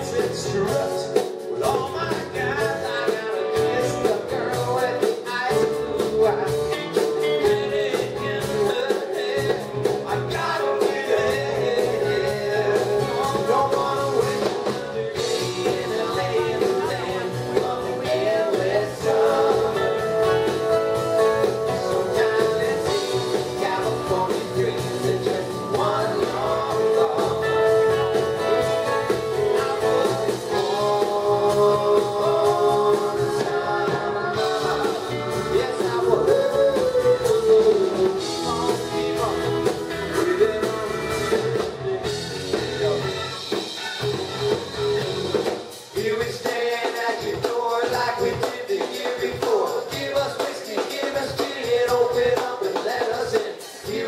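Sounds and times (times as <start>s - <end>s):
man singing lead: 0.0s - 44.2s, 45.4s - 54.0s
live rock band playing: 0.0s - 54.0s.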